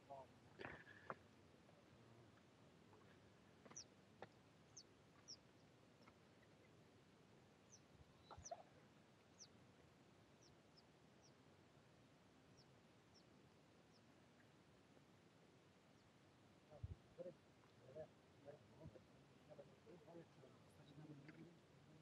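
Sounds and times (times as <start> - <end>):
small birds chirping: 2.3 - 7.0, 7.6 - 11.4, 12.4 - 14.6, 15.8 - 22.0.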